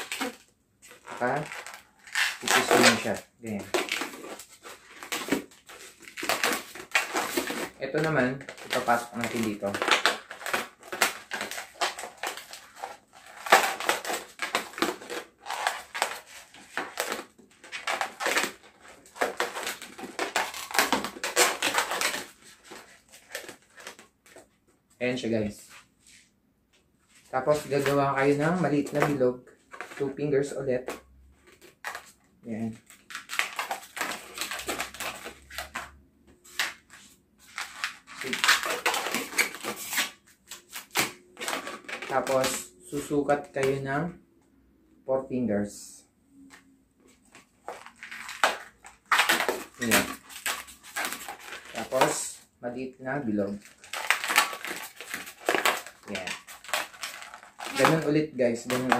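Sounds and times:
balloon squeaking against hands: 0.0 - 24.0, 37.8 - 43.0, 47.6 - 52.2.

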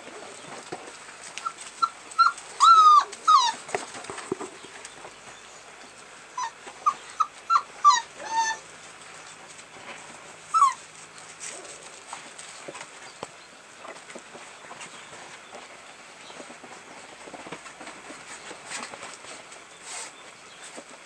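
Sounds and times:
puppies whimpering and yelping: 1.4 - 4.0, 6.3 - 8.7, 10.5 - 10.9.

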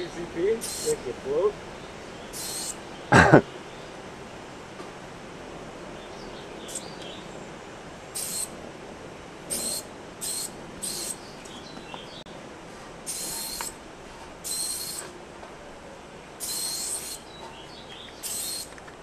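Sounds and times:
spray-paint can hissing: 0.6 - 0.9, 2.4 - 2.7, 8.2 - 8.5, 9.5 - 11.2, 13.1 - 13.7, 14.4 - 15.1, 16.4 - 17.2, 18.2 - 18.7.

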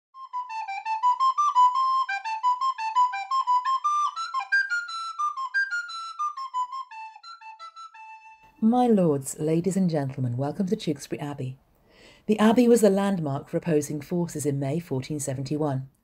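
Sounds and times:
solo recorder melody: 0.2 - 8.6.

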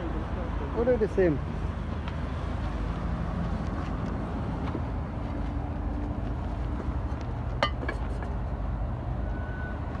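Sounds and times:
clay pots clinking: 7.6 - 8.3.

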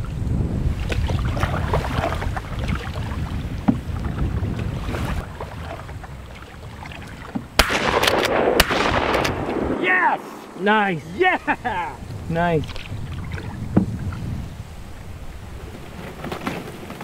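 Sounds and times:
paddle strokes in water: 0.0 - 7.6, 12.6 - 17.0
wind on microphone: 0.0 - 17.0
shotgun shot: 7.6 - 10.7
sharp cracks: 7.6 - 11.0.

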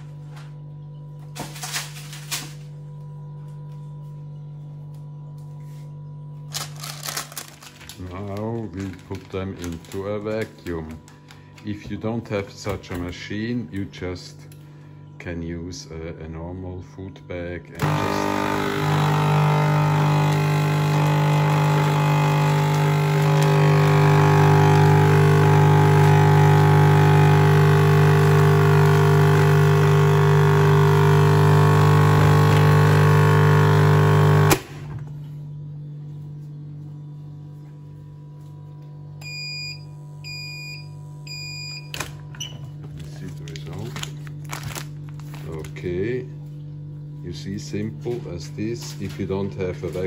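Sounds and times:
faint hum: 0.0 - 50.0
vacuum sealer pump humming: 17.6 - 50.0.

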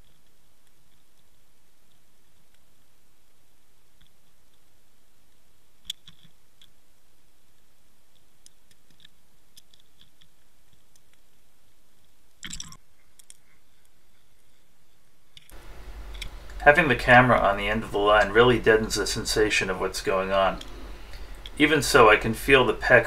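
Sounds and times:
sharp underwater clicks: 5.8 - 6.8
steady hiss: 15.5 - 23.0.

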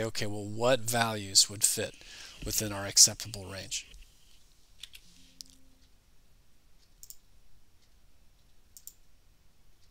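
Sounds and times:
faint low hum: 0.0 - 9.9
faint mouse clicks: 6.8 - 7.2, 7.8 - 9.1.

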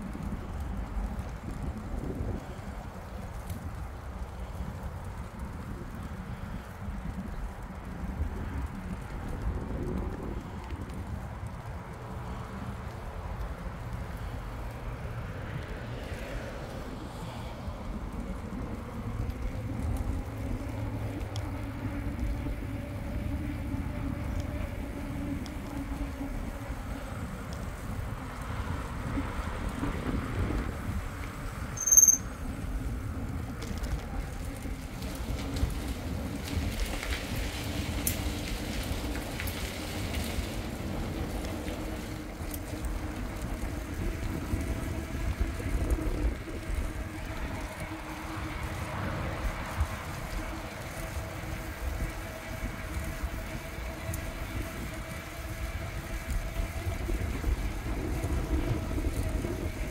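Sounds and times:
bike tyres rolling on concrete: 0.0 - 59.9
short high-pitched ring: 31.8 - 32.3.

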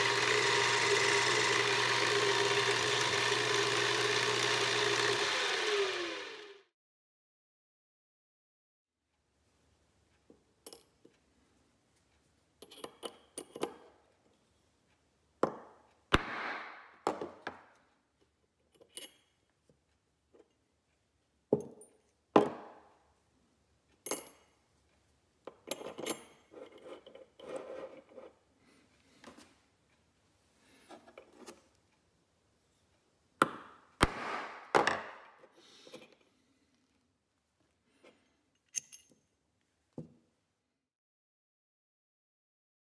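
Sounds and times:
small metal parts clinking: 38.5 - 39.2.

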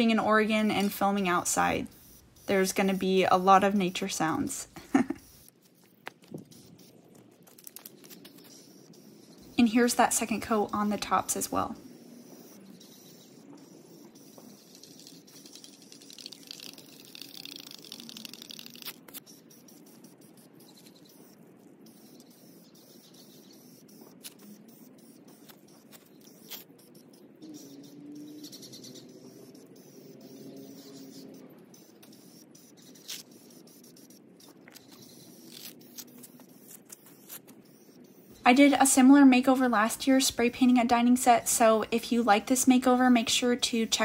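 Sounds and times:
birds chirping: 0.0 - 5.4, 7.8 - 16.5, 19.2 - 44.0
aerosol spray can hissing: 0.0 - 7.0, 7.7 - 21.3, 21.9 - 38.8
frogs croaking: 7.7 - 41.1.

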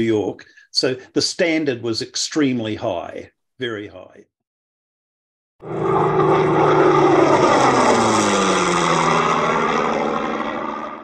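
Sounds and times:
aircraft engine drone passing: 5.6 - 11.0.

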